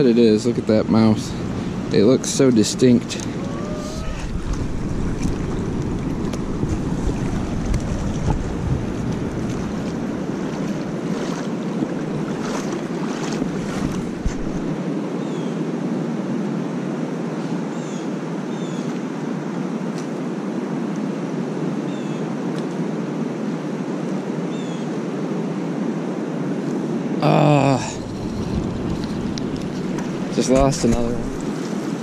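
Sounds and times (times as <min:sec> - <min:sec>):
river current rushing: 0:01.0 - 0:15.0, 0:27.1 - 0:32.0
wind noise on microphone: 0:03.1 - 0:14.9, 0:27.7 - 0:32.0.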